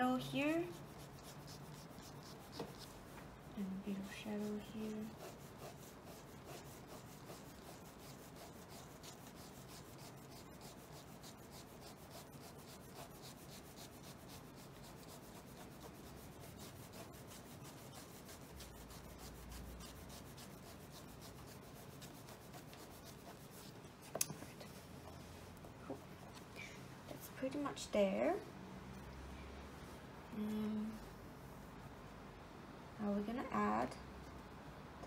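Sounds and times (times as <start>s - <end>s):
pen scratching on paper: 0.4s - 24.8s.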